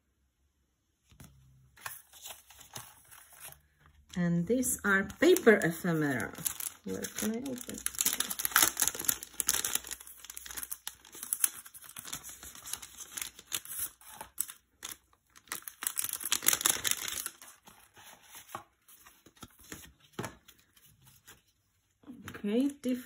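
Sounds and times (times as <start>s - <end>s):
papers being handled: 1.1s - 22.8s
cellophane bag crinkling: 5.0s - 18.3s.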